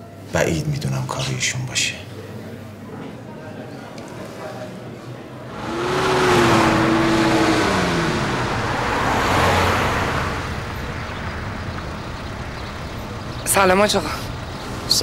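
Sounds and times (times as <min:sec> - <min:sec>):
cars passing by: 0:05.4 - 0:15.0
tyre noise: 0:05.5 - 0:13.5.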